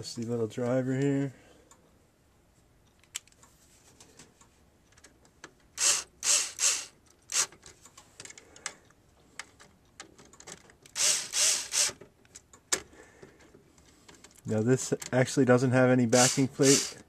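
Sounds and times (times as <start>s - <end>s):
bit and screw clicks: 4.9s - 8.8s, 9.4s - 12.8s, 16.2s - 17.0s
cordless drill spinning: 5.8s - 7.5s, 11.0s - 12.0s, 16.2s - 17.0s.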